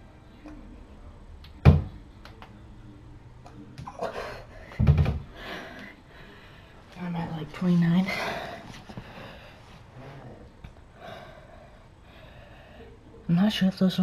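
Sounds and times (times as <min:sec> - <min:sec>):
hard breathing: 0:04.2 - 0:07.0, 0:08.0 - 0:13.0.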